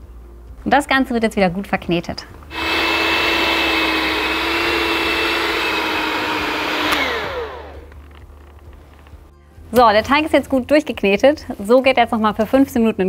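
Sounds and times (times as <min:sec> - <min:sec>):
electric hand mixer motor whining: 0:02.5 - 0:08.0
mixer switch click: 0:06.6 - 0:07.6.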